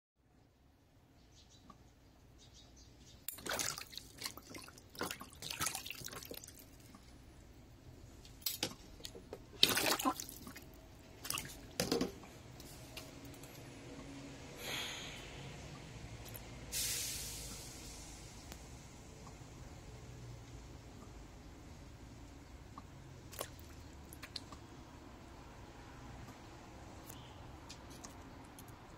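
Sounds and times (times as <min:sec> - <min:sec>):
water splashing in plastic tub: 0:03.3 - 0:07.0, 0:08.3 - 0:12.2, 0:23.2 - 0:24.7.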